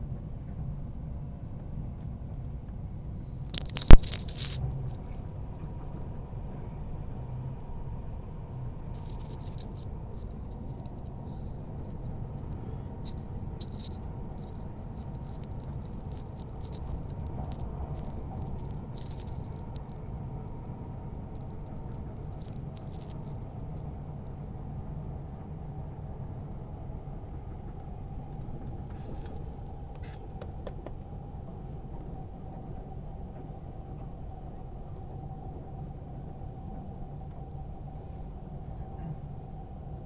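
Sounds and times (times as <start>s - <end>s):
faint steady hum: 0.0s - 40.0s
train rumble from inside: 0.0s - 40.0s
light rattles and ticks: 3.4s - 6.7s, 8.6s - 24.7s.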